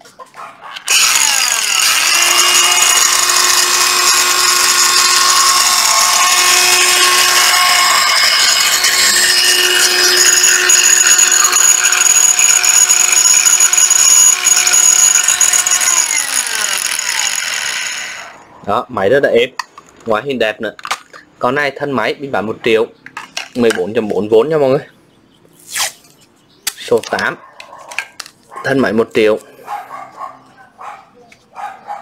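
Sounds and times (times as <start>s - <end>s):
angle grinder whining: 0.8s - 18.5s.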